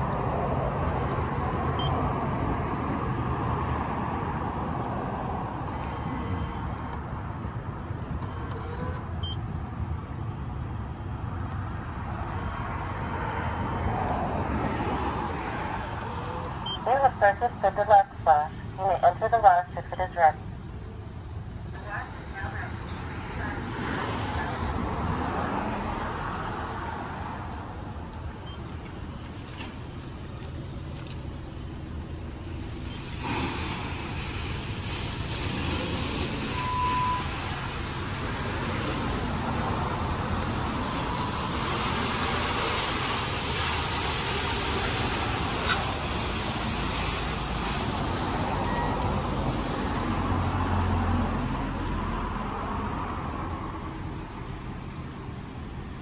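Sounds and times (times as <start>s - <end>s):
low hum of idling car and machinery: 0.0s - 56.0s
car wash water spray hissing: 32.3s - 51.6s
short beep: 36.5s - 37.3s, 48.6s - 49.0s.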